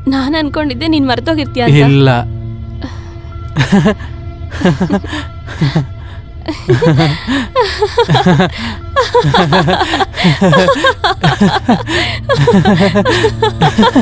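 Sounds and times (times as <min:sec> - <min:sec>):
boy laughing: 0:03.6 - 0:14.0
woman laughing: 0:03.6 - 0:14.0.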